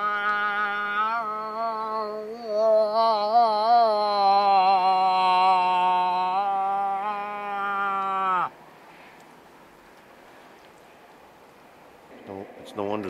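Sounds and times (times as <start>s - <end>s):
person making moose call: 0.0s - 8.6s.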